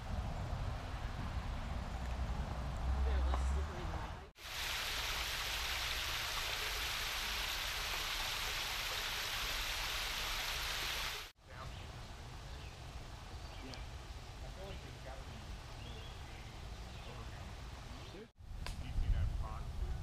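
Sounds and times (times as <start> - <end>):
quiet woodland ambience: 1.4 - 18.8
small waterfall splashing: 4.4 - 11.3.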